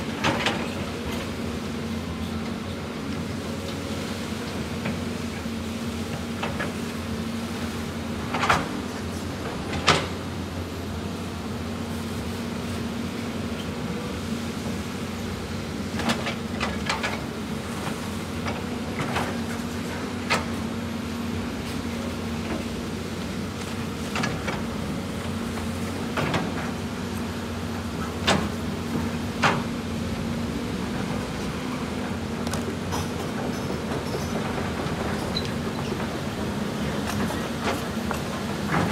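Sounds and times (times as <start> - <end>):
excavator diesel engine running: 0.0 - 38.9.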